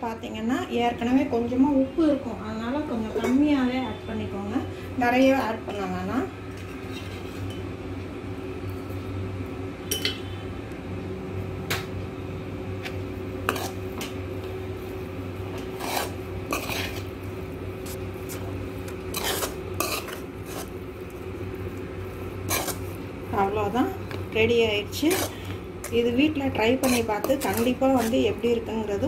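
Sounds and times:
ladle scraping metal pan: 15.8s - 17.1s, 19.1s - 20.7s, 22.4s - 22.9s, 25.0s - 26.0s, 26.7s - 28.3s.

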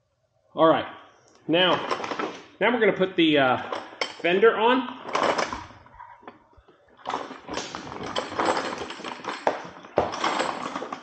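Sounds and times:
bike parts rustling and clattering: 1.5s - 2.6s, 3.4s - 11.0s.

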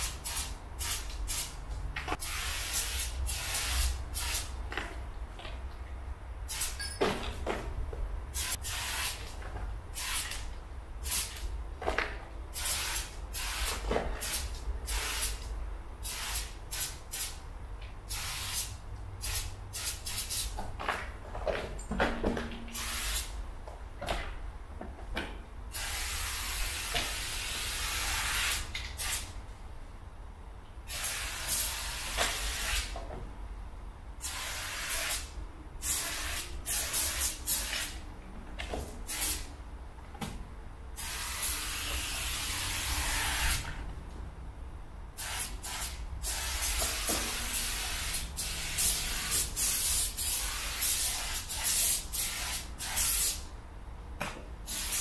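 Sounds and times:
spray paint can hissing: 0.0s - 4.6s, 6.5s - 6.8s, 8.3s - 11.5s, 12.5s - 17.4s, 18.1s - 20.6s, 22.7s - 23.4s, 25.7s - 29.3s, 30.9s - 33.0s, 34.2s - 38.0s, 39.0s - 39.5s, 41.0s - 43.7s, 45.2s - 53.5s, 54.7s - 55.0s
low steady rumble: 33.0s - 34.2s, 43.6s - 45.2s.

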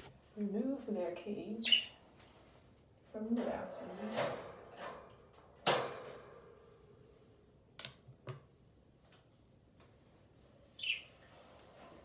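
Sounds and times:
budgie chirp: 10.8s - 11.1s.

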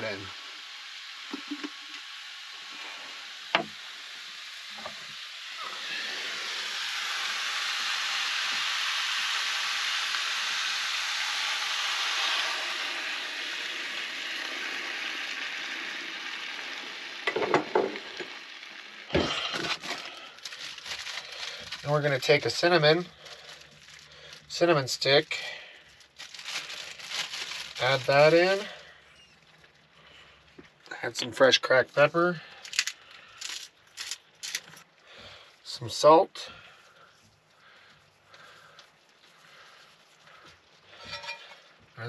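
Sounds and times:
juice sizzling in skillet: 0.0s - 42.0s.

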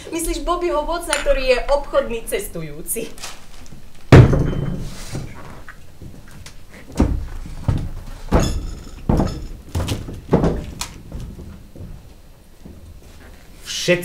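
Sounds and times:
footsteps on stage platform: 5.1s - 13.6s.

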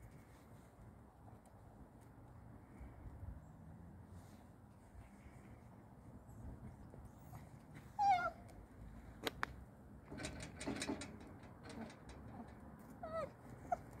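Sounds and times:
dog whining: 7.3s - 8.4s, 12.3s - 14.0s.

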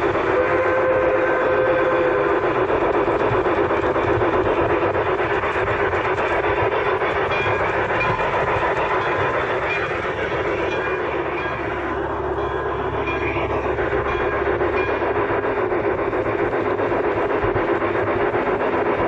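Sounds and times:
model train motor and wheel noise: 0.0s - 19.0s.

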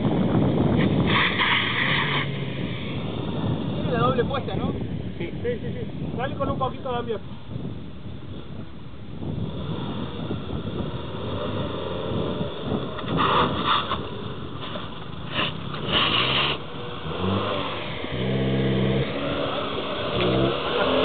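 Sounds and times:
car engine pulling under load: 9.2s - 21.0s.

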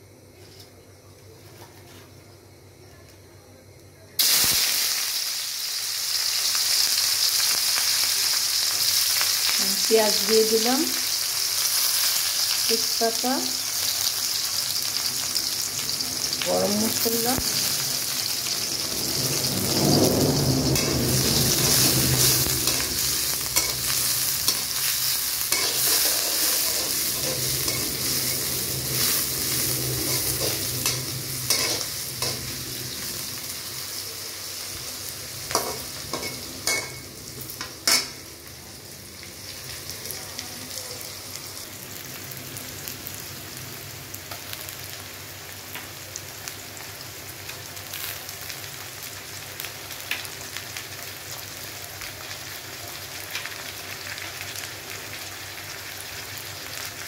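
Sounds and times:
onions sizzling in hot oil: 4.2s - 57.0s
metal spatula scraping pan: 25.5s - 32.5s.

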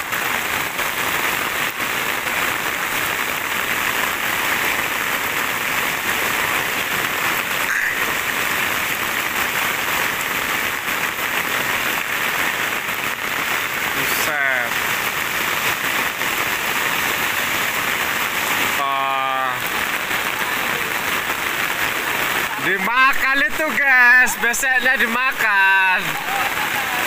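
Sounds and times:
heavy rain pouring: 0.0s - 27.0s.

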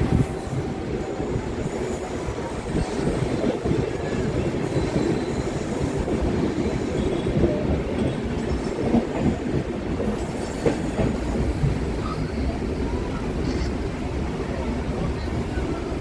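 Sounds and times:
train wheels rumbling on rails: 0.0s - 16.0s
train wheels clacking: 1.5s - 12.3s.

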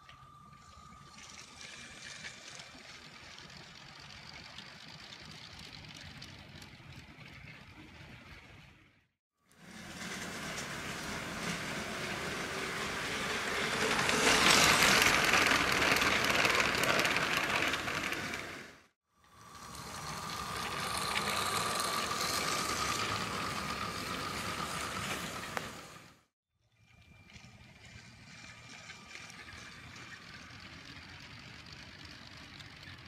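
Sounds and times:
high motor whine: 0.0s - 5.0s, 19.2s - 26.2s
toy train motor whirring: 9.6s - 26.0s
toy train wheels rattling: 12.2s - 18.7s, 19.3s - 25.8s.

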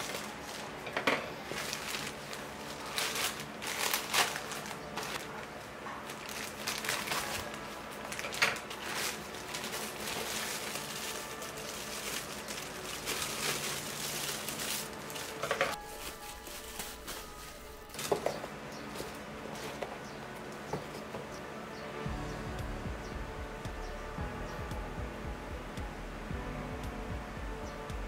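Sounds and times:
plastic packaging crinkling: 0.0s - 21.0s.

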